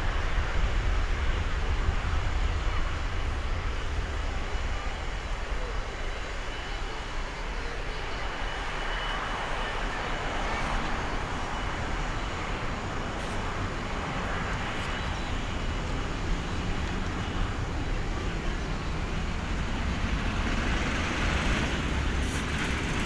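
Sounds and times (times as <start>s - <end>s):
distant jet engines roaring: 0.0s - 23.0s.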